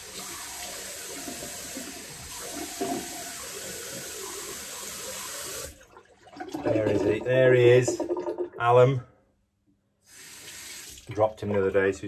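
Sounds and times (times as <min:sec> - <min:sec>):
tap running into a sink: 0:00.2 - 0:05.7.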